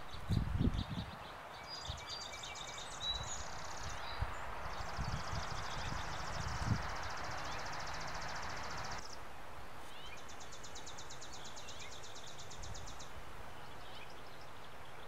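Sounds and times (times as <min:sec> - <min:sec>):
birds chirping: 0:00.0 - 0:15.0
songbird trilling: 0:00.1 - 0:09.2
rushing background noise: 0:02.6 - 0:09.1.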